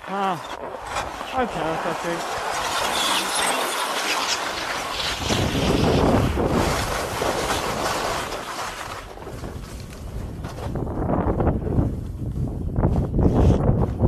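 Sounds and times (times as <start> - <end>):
skis scraping over snow: 0.0 - 14.0
wind buffeting microphone: 4.9 - 14.0.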